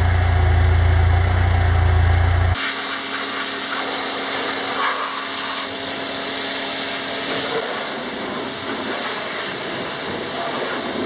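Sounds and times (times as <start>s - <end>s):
pressure washer motor hum: 0.0s - 11.0s
water spray hissing: 2.6s - 11.0s.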